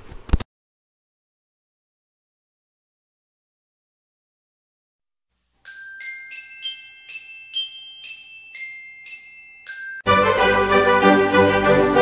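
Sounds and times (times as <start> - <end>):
glockenspiel jingle: 5.6 - 12.0.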